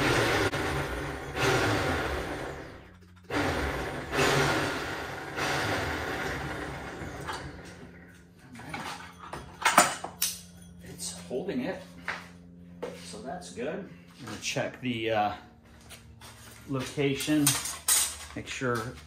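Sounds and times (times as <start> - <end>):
electric winch running: 0.0 - 8.4.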